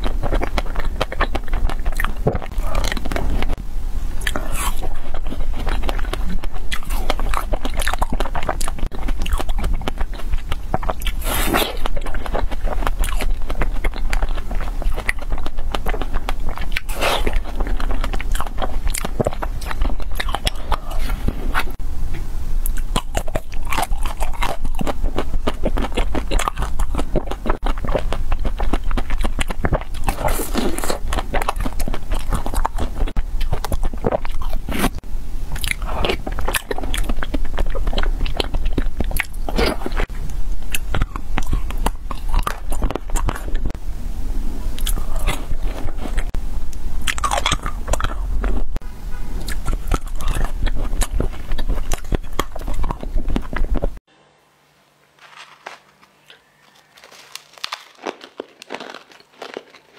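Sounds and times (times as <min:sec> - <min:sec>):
chewing: 0:00.0 - 0:03.6, 0:04.2 - 0:21.8, 0:22.6 - 0:43.8, 0:44.8 - 0:46.4, 0:47.0 - 0:54.0, 0:55.3 - 0:59.9
crunching bites of ice cream bars: 0:55.2 - 0:59.9.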